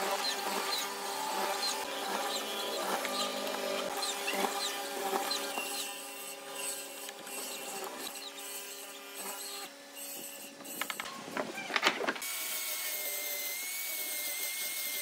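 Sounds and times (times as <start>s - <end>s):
mortiser motor hum: 0.0s - 9.7s.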